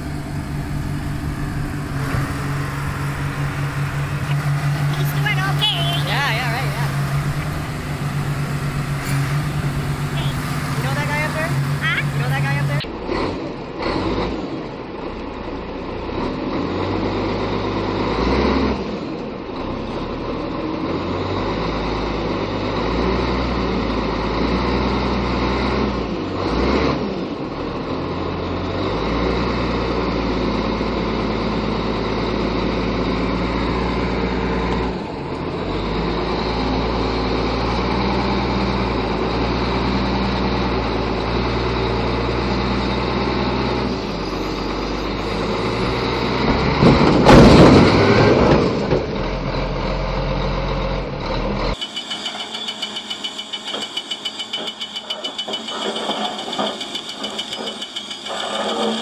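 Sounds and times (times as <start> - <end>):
heavy machinery engines running: 0.0 - 59.0.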